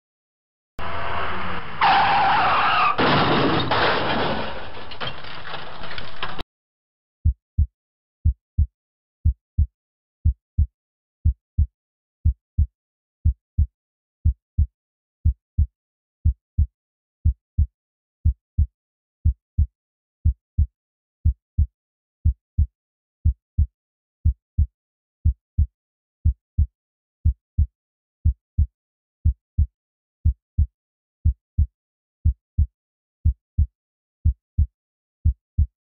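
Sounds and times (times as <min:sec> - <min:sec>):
heartbeat thumps: 0:07.2 - 0:35.7.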